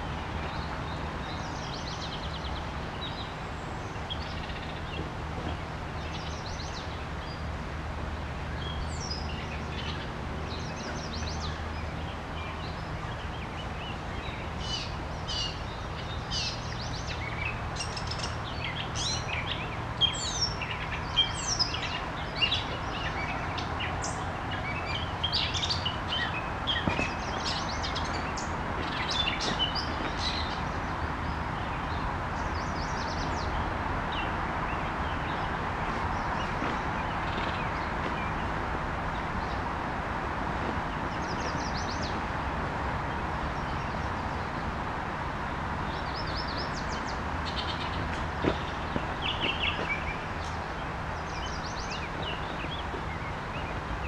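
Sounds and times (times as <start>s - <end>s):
river water flowing: 0.0s - 54.0s
birds chirping and calling: 12.5s - 39.6s, 45.9s - 53.8s.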